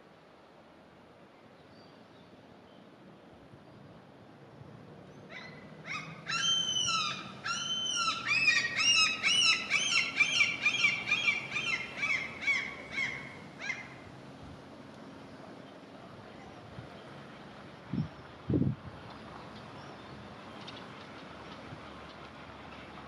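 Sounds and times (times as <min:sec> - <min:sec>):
gull long call: 0:05.3 - 0:14.0.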